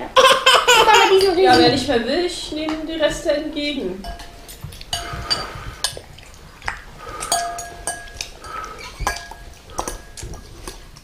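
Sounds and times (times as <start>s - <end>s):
fork clinking against glass bowl: 4.0s - 6.1s, 7.1s - 10.8s.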